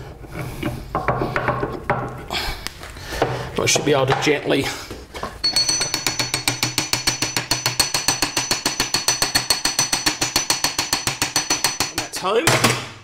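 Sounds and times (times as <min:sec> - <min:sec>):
high metallic ring: 0:05.4 - 0:10.5
hammer tapping metal shaft: 0:05.4 - 0:12.2.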